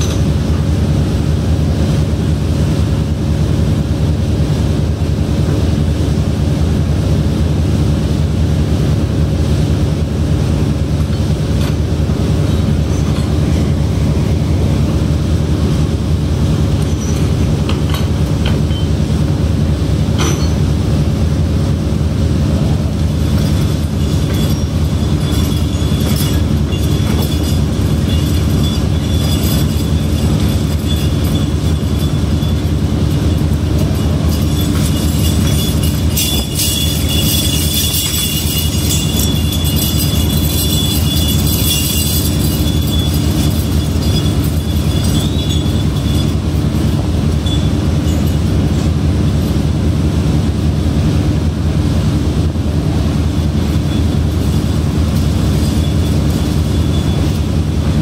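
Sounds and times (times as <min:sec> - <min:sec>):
heavy machinery drone: 0:00.0 - 0:58.0
metallic clinks and clatter: 0:16.5 - 0:19.0, 0:23.0 - 0:49.7, 0:53.3 - 0:58.0
metal on metal rattle: 0:22.9 - 0:49.0.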